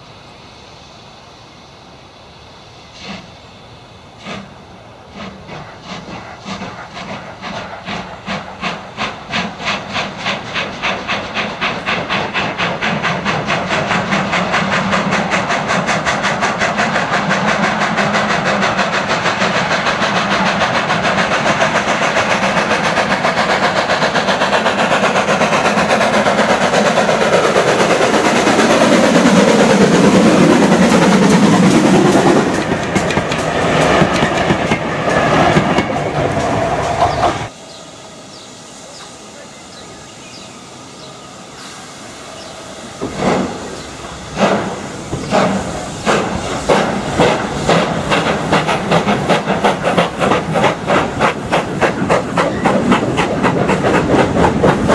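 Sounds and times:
steam locomotive exhaust beats: 0.0s - 54.9s
train wheels clattering on rails: 4.2s - 40.4s, 42.3s - 54.9s.

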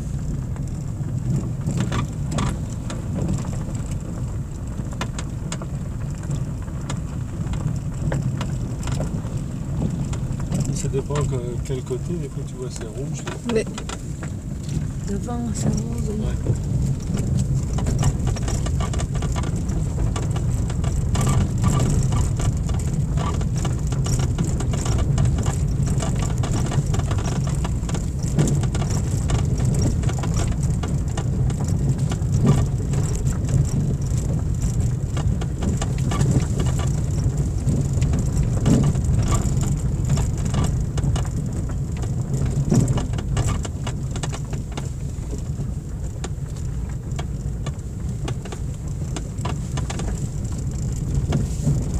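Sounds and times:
engine and tyre rumble: 0.0s - 51.9s
stones clicking under tyres: 0.0s - 51.9s.

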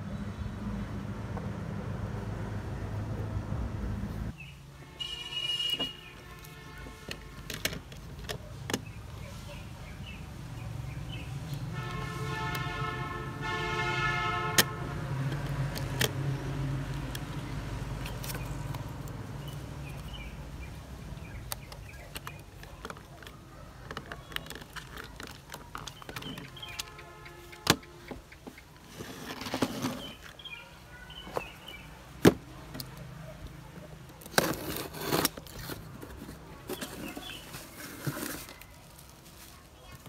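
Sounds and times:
plastic parts clicking: 6.3s - 8.9s, 15.3s - 17.4s, 21.1s - 28.6s.

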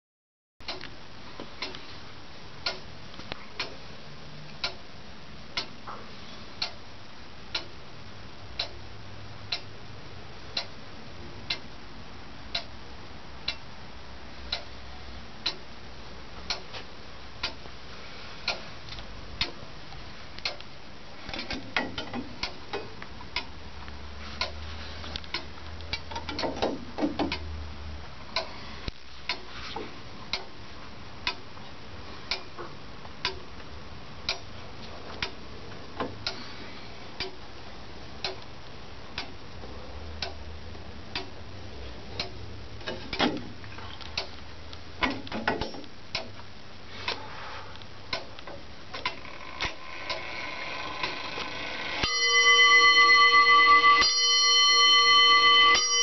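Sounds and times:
clock ticking: 0.6s - 1.0s, 2.6s - 2.9s, 3.6s - 3.8s, 4.6s - 4.9s, 5.5s - 5.8s, 6.6s - 6.8s, 7.4s - 7.8s, 8.5s - 8.8s, 10.5s - 10.8s, 11.5s - 11.8s, 12.5s - 12.8s, 13.4s - 13.8s, 14.5s - 14.8s, 15.4s - 15.8s, 16.4s - 16.8s, 17.4s - 17.7s, 18.4s - 18.6s, 20.4s - 20.7s, 21.5s - 23.6s, 24.4s - 24.6s, 25.2s - 27.5s, 29.3s - 29.5s, 30.3s - 30.6s, 31.2s - 31.5s, 32.3s - 32.6s, 33.2s - 33.5s, 34.2s - 34.5s, 35.2s - 35.4s, 37.2s - 37.4s, 38.2s - 38.5s, 39.1s - 39.4s, 40.2s - 40.4s, 41.1s - 41.4s, 42.2s - 43.4s, 44.1s - 46.4s, 48.1s - 56.0s.

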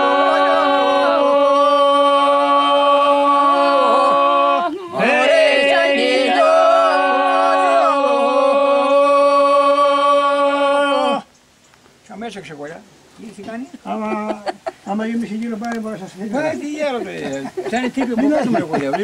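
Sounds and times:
group singing unaccompanied: 0.0s - 11.4s.

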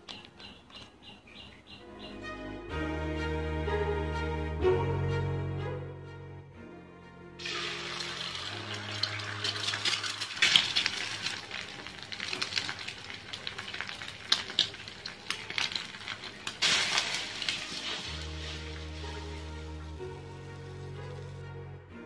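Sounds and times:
water pouring into a pan: 7.4s - 21.3s
egg sizzling in hot oil: 7.4s - 21.4s.

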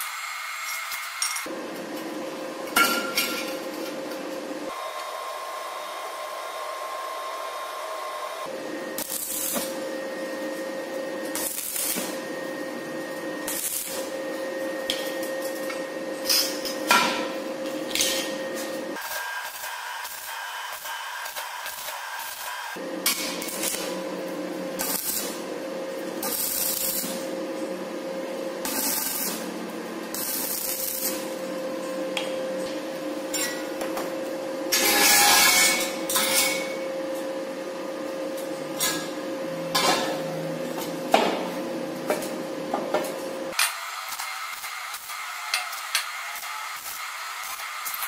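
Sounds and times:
welding arc crackling: 9.0s - 12.3s, 13.4s - 15.8s, 17.9s - 27.4s, 28.6s - 31.6s, 43.5s - 48.0s.

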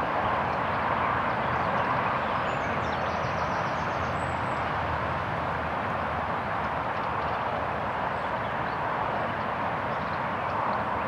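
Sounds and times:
outdoor background rush: 0.0s - 11.0s.

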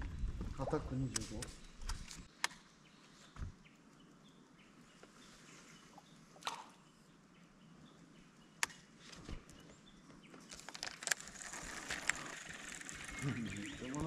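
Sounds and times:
faint outdoor ambience: 0.0s - 14.0s
sharp clicks: 1.0s - 2.7s.

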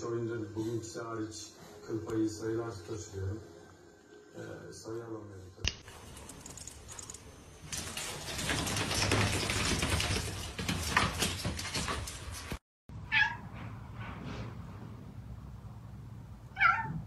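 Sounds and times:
cat meowing: 13.1s - 13.4s, 16.5s - 17.0s.

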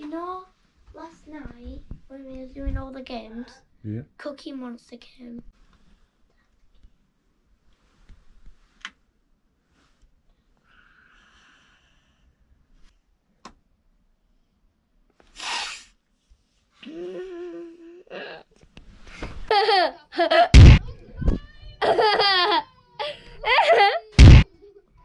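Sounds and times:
short breathy hiss: 15.2s - 16.0s
child's sleepy vocal moan: 16.8s - 18.5s.

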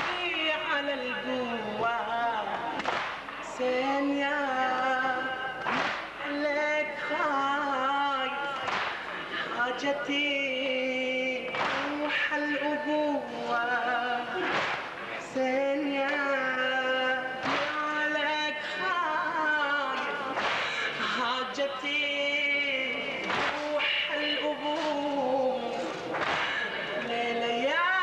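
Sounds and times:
man singing a lament: 0.0s - 2.8s, 3.4s - 28.0s
crowd chest-beating strikes: 2.8s - 3.5s, 5.6s - 6.3s, 8.4s - 9.4s, 11.4s - 12.5s, 14.3s - 15.3s, 17.4s - 18.6s, 19.9s - 21.2s, 23.2s - 25.1s, 25.8s - 27.1s.

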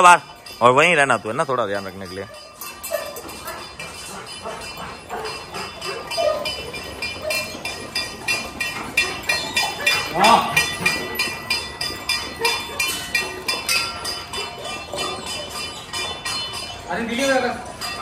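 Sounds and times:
metal bowls clinking: 0.0s - 18.0s
dogs lapping: 2.3s - 16.2s.

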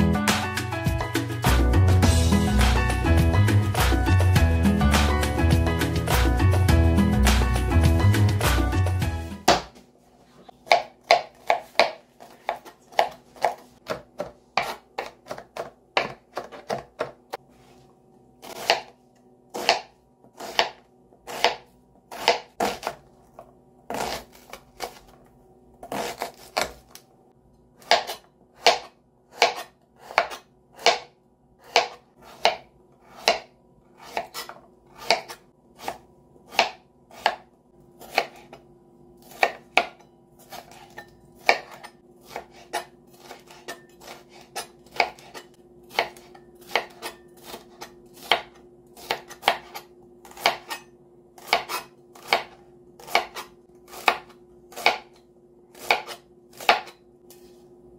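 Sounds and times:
knife chopping on cutting board: 9.4s - 9.8s, 10.5s - 17.4s, 18.4s - 23.1s, 23.9s - 25.1s, 25.8s - 27.0s, 27.8s - 38.6s, 39.2s - 57.6s.

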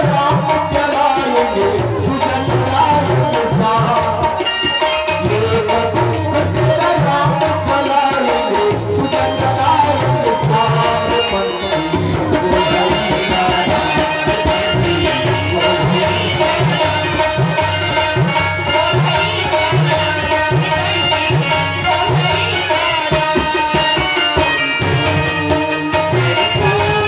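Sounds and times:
hand drums rhythm: 0.0s - 27.0s
sustained melody line: 0.0s - 27.0s.

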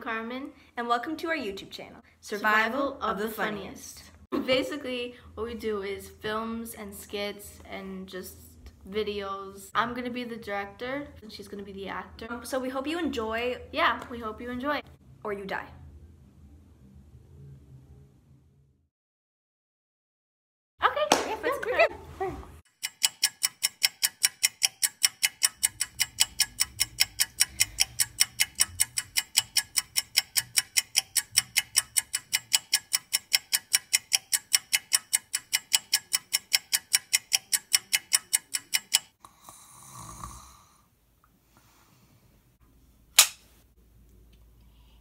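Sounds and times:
rapid ticking: 22.7s - 39.2s
sharp click: 43.2s - 43.4s.

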